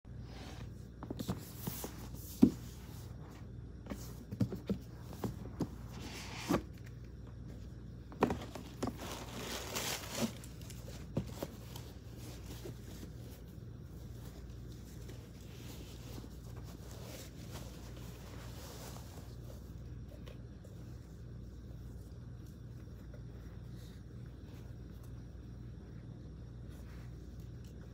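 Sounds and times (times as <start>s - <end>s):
cloth bag rustling: 8.2s - 13.5s
rustling: 8.2s - 27.9s.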